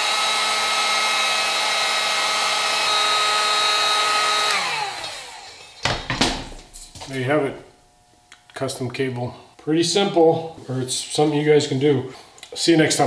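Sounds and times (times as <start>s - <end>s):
heat gun fan whine: 0.0s - 10.3s.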